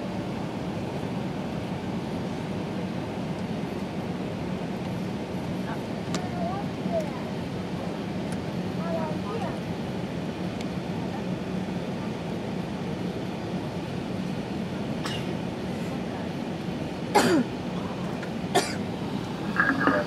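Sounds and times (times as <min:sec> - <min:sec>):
aircraft cabin hum: 0:00.2 - 0:20.0
person coughing: 0:17.1 - 0:17.5, 0:18.5 - 0:18.8.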